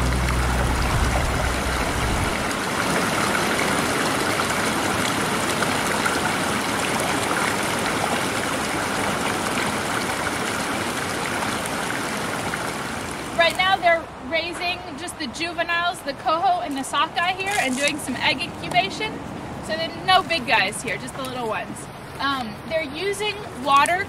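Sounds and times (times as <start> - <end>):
water gushing into a pool: 0.0 - 13.4.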